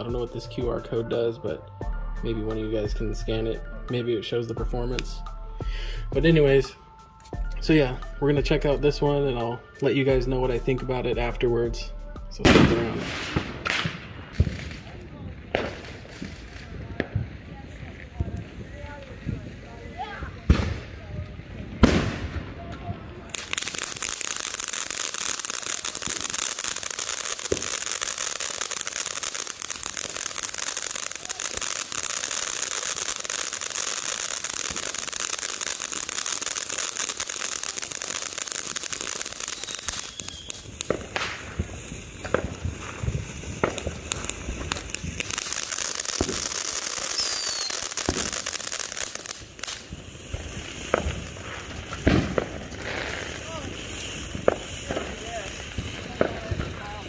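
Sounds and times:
firework fountain hissing and crackling: 0.0 - 1.6, 12.3 - 57.0
falling whistles: 39.5 - 40.7, 47.0 - 47.8.

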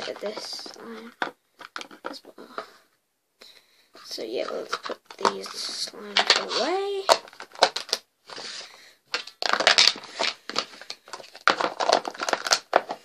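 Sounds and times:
plastic lids clicking: 0.0 - 2.7, 9.1 - 13.0
plastic tubs rustling and clattering: 0.0 - 2.9, 3.9 - 13.0.

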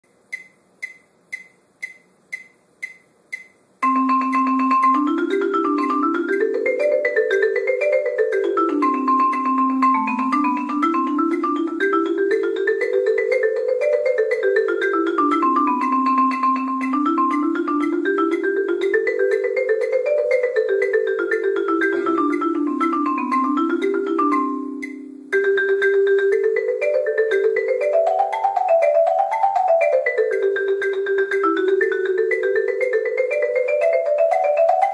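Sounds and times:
count-off clicks: 0.1 - 4.0
marimba fast runs: 1.8 - 34.9.

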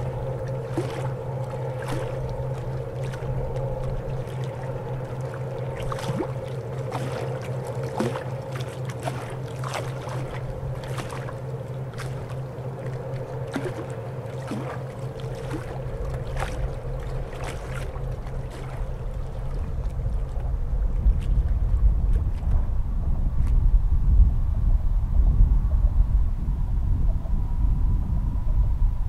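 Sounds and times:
boat diesel engine droning: 0.0 - 23.4
wind rumble on microphone: 0.0 - 29.0.

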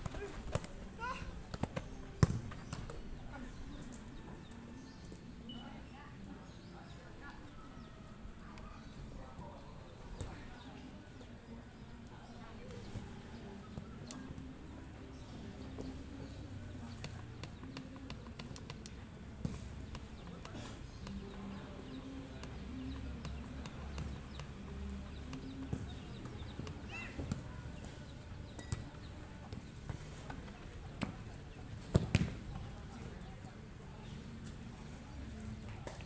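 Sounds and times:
ball being kicked: 1.5 - 3.0.

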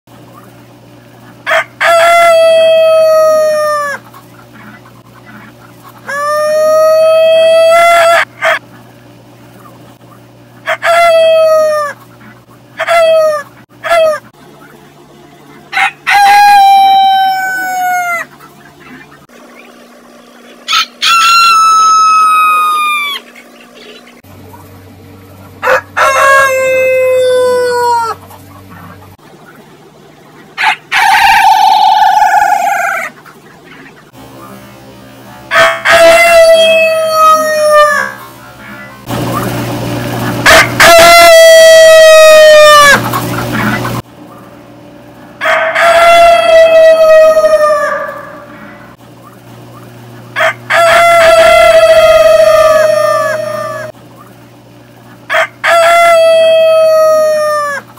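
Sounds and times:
rooster crow with voice effects: 20.7 - 23.2, 25.6 - 28.2, 40.5 - 43.0, 45.4 - 48.6, 50.4 - 53.9, 55.3 - 57.8.

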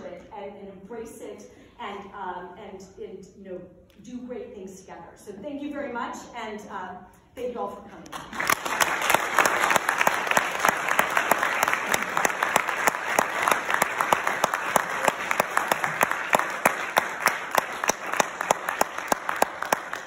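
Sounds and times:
audience applauding: 8.2 - 20.0.

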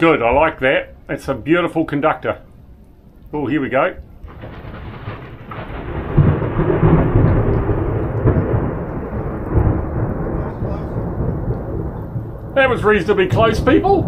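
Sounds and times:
close thunderclap rumbling: 4.2 - 14.0.

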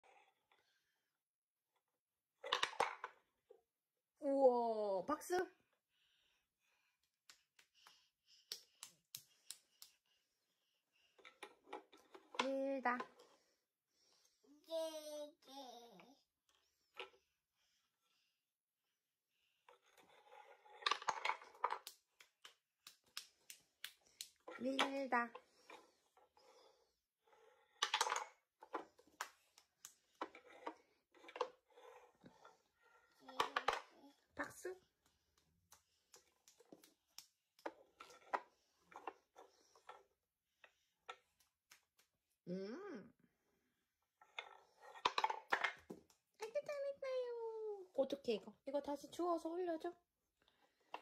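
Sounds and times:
wooden pieces clacking in toy box: 2.4 - 3.2, 20.7 - 25.4, 27.8 - 31.6, 33.2 - 34.0, 44.4 - 46.2.

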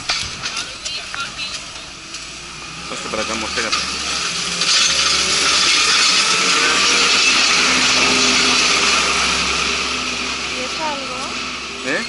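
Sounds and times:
small loader engine running: 0.0 - 12.0.

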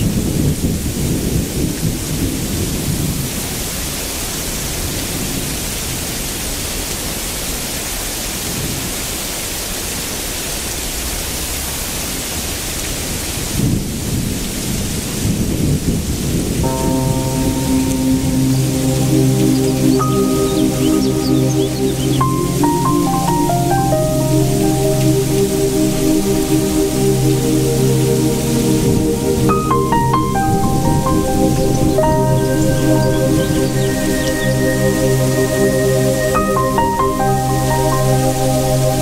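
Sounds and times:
music with held notes: 16.7 - 39.0.

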